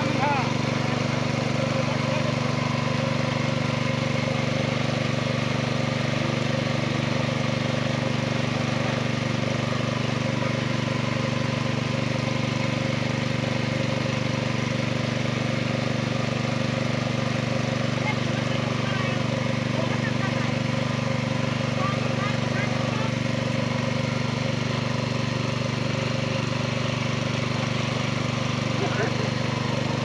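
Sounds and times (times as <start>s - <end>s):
small engine running: 0.0s - 30.0s.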